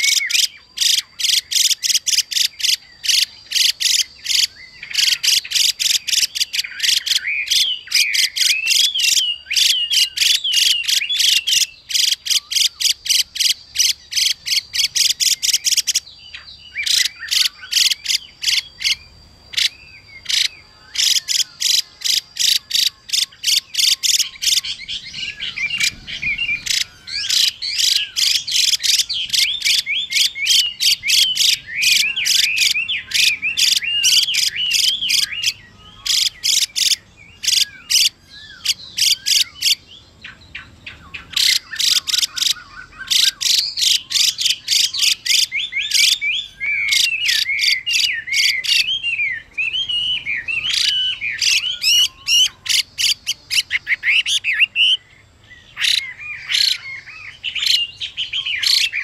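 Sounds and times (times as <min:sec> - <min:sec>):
harsh buzzy bird calls: 0:00.0 - 0:59.0
whistled bird song: 0:00.0 - 0:59.0.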